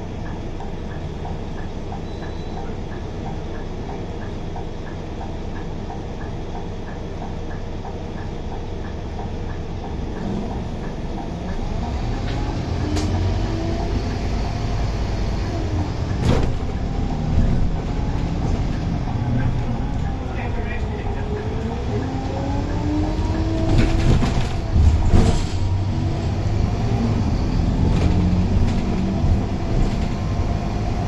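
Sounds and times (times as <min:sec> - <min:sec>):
bus diesel engine: 0:00.0 - 0:31.0
light ticking: 0:00.2 - 0:12.3.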